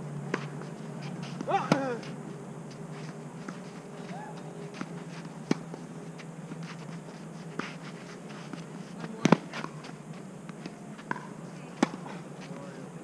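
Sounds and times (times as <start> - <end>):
steady low hum: 0.0 - 13.0
tennis racket hitting ball: 1.2 - 2.2, 9.0 - 9.8.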